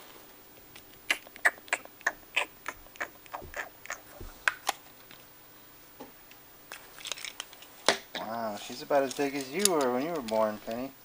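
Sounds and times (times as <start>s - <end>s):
plastic packaging crinkling: 6.7s - 10.9s.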